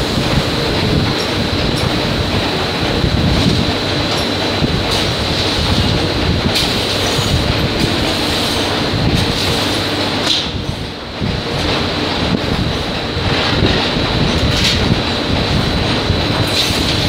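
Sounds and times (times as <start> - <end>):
factory machinery noise: 0.0 - 17.0.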